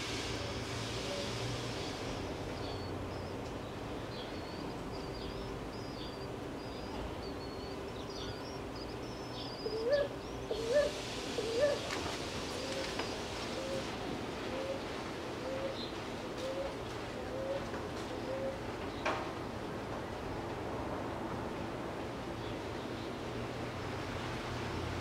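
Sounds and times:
faint steady hum: 0.0s - 25.0s
small birds chirping: 2.5s - 10.9s
dove cooing: 8.4s - 18.7s.

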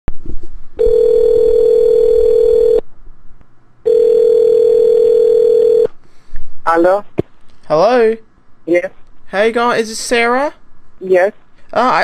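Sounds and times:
telephone ringback tone: 0.8s - 2.8s, 3.9s - 5.9s.

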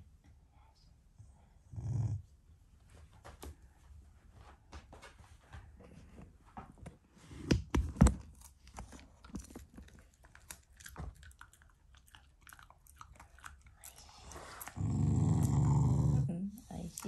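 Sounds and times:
dog chewing and crunching food: 8.0s - 15.8s.

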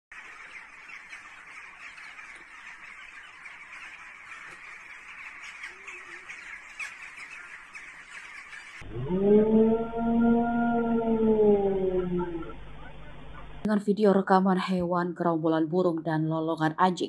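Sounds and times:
flock of birds calling: 0.1s - 8.9s, 11.5s - 13.7s.

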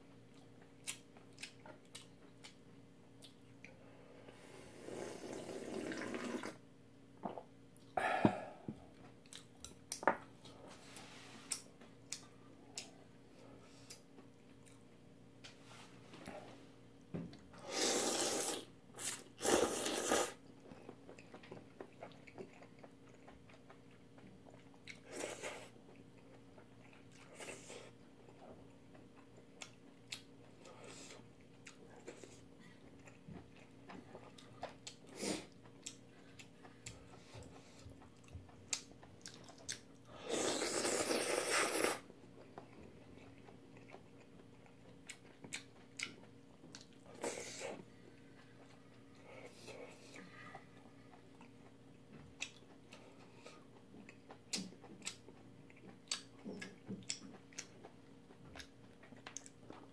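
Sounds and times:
noodle slurping: 4.7s - 6.6s, 17.6s - 20.4s, 40.2s - 42.0s
wet chewing: 19.8s - 59.9s.

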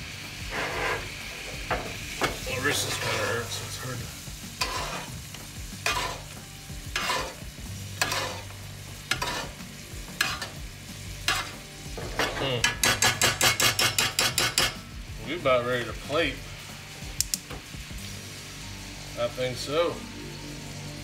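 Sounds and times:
pan sauce sizzling: 0.0s - 21.0s
spoon strokes in pan: 0.3s - 1.6s, 2.5s - 14.8s.

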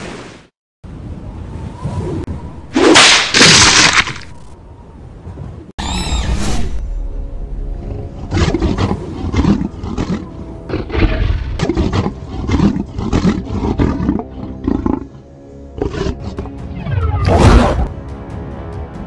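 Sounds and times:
background music: 6.8s - 19.0s.

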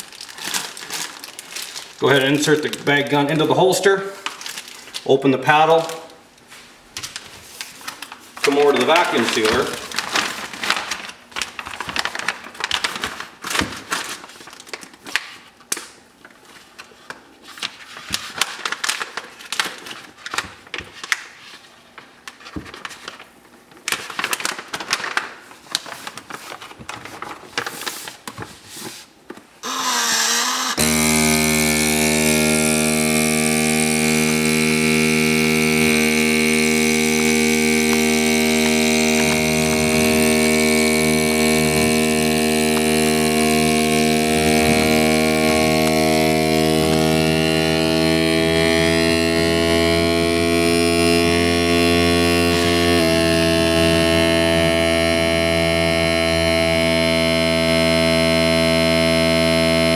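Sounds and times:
plastic bags crinkling: 0.0s - 29.2s
vacuum sealer pump humming: 8.2s - 13.6s, 29.6s - 59.9s.

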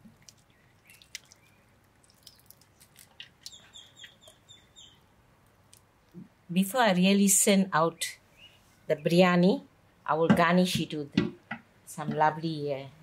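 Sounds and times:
bird chirping: 0.4s - 5.1s.

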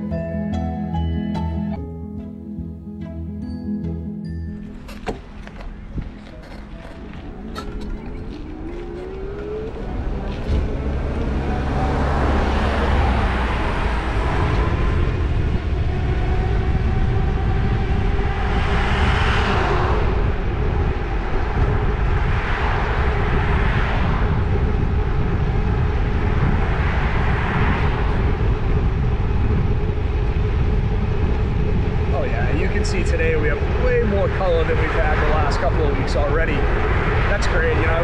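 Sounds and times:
passing vehicles whooshing: 4.6s - 38.0s
wind rumbling on microphone: 4.6s - 38.0s
electric bike motor whine: 7.8s - 32.1s.

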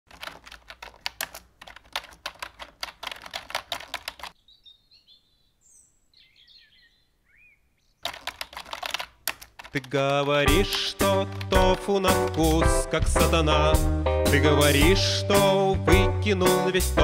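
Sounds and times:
fast keyboard typing: 0.1s - 4.4s, 8.0s - 12.6s
faint bird chirps: 4.3s - 8.0s.

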